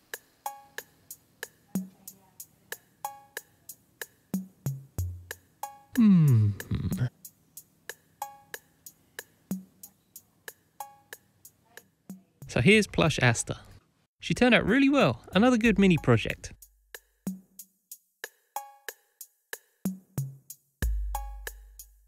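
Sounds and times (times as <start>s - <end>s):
background music with beat: 0.0s - 12.7s, 15.4s - 22.0s.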